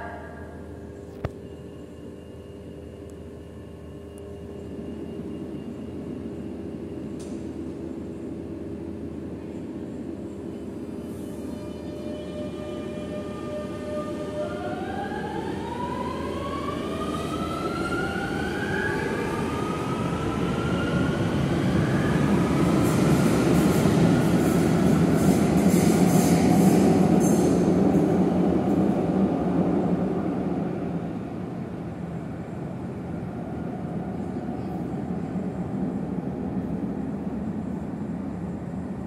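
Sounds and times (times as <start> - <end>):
wheels rumbling on rail: 0.0 - 39.0.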